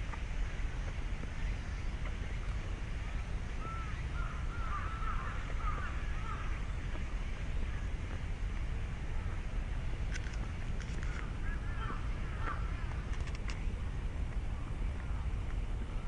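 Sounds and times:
steady low rumble: 0:00.0 - 0:16.0
crow cawing: 0:03.6 - 0:06.6, 0:11.4 - 0:12.9.

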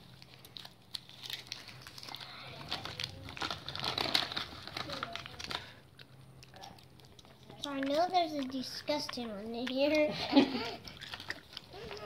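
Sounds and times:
paper bag crinkling: 0:00.0 - 0:05.8.

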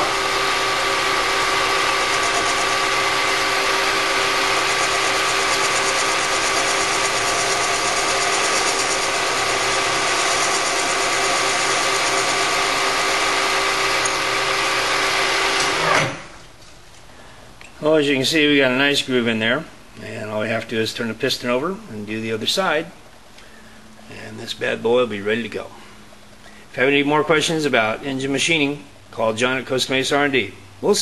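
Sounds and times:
lathe whining: 0:00.0 - 0:16.2.

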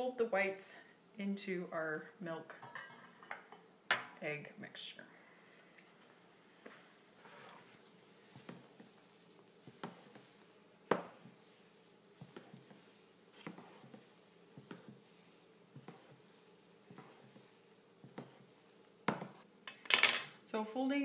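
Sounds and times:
spatula scraping saucepan: 0:07.2 - 0:19.5
spatula tapping saucepan: 0:10.9 - 0:11.3.

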